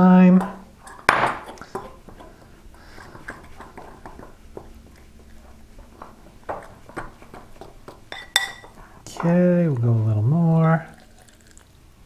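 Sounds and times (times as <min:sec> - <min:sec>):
fork clinking on glass: 0:08.1 - 0:08.8.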